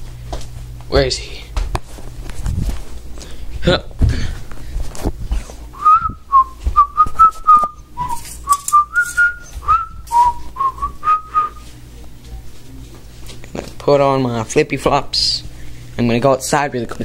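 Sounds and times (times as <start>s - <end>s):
person whistling short notes: 5.8s - 11.6s.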